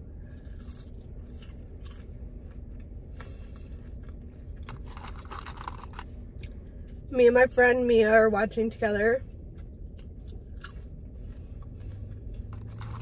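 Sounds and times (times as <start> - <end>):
chewing crunchy food: 0.0 - 7.0, 9.5 - 13.0
steady low rumble: 0.0 - 13.0.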